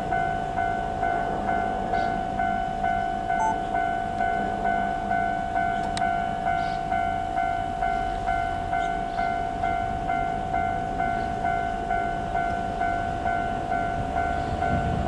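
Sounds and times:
level crossing alarm ringing: 0.0s - 15.0s.

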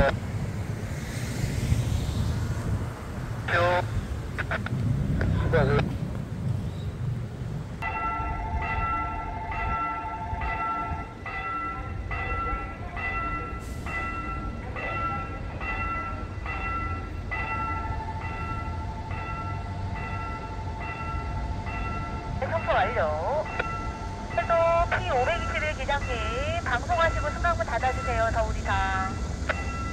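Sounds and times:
low rumble: 0.0s - 7.8s
level crossing warning bell: 7.8s - 29.9s.

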